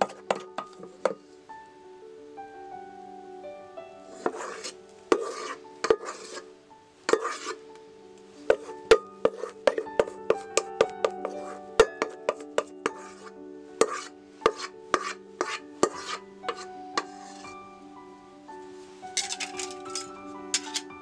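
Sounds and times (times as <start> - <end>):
background music with held notes: 0.0 - 21.0
utensil scraping metal bowl: 4.1 - 6.5, 7.1 - 7.6, 8.5 - 17.6, 19.2 - 20.9.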